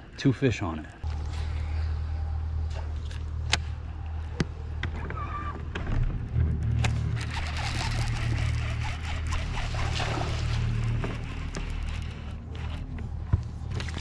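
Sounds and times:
electric motor humming: 6.5s - 14.0s
sharp clicks: 6.6s - 13.0s.

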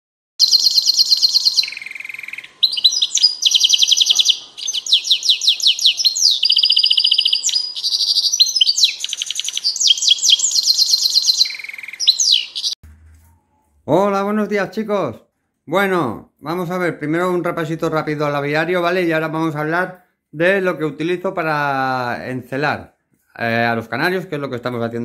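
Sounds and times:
finch singing trilled song: 0.4s - 12.8s.

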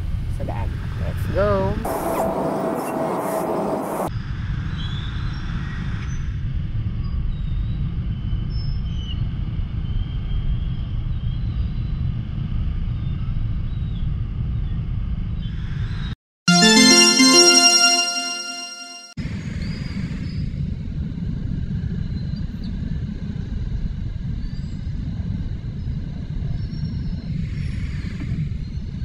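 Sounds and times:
music: 16.5s - 19.2s.

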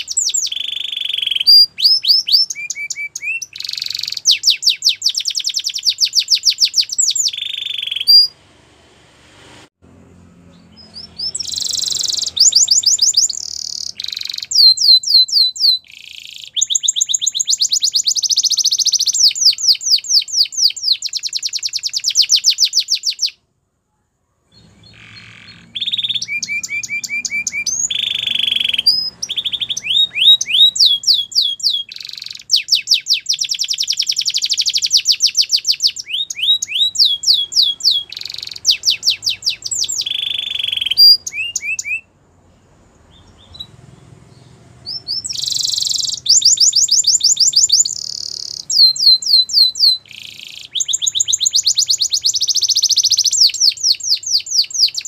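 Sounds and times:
canary singing trills: 0.0s - 8.4s, 10.0s - 23.4s, 24.5s - 55.0s.

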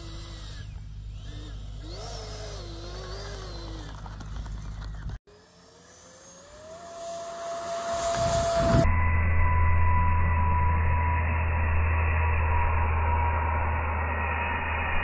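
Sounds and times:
electric ducted fan whining: 0.0s - 8.9s
low rumble: 7.9s - 15.0s.

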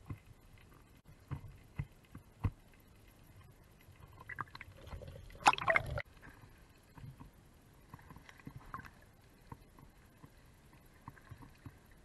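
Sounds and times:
water slapping at surface: 4.2s - 6.0s.

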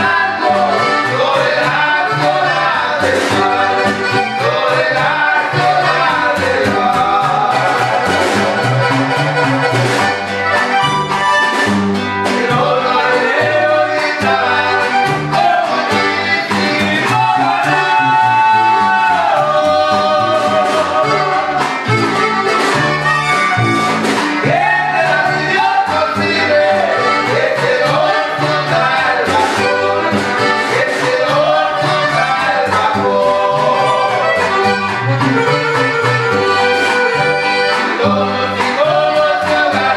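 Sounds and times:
man singing: 0.0s - 8.2s, 12.3s - 21.8s, 24.4s - 34.4s, 37.9s - 39.9s
button accordion: 0.0s - 39.9s
guitar: 0.0s - 39.9s
upright bass: 0.0s - 39.9s
snare drum: 20.4s - 24.9s.

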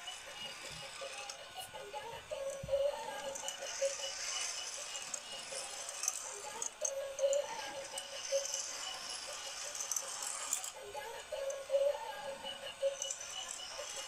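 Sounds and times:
toy cars rattling on plastic track: 0.0s - 1.4s, 3.2s - 11.6s, 12.9s - 14.0s.

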